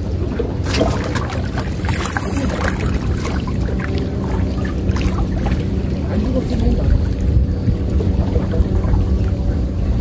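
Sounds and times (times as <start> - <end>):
boat engine droning: 0.0 - 10.0.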